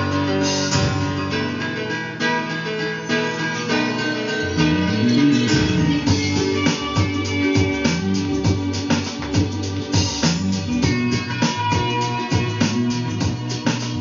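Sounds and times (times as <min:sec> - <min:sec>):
guitar music from record player: 0:00.0 - 0:14.0.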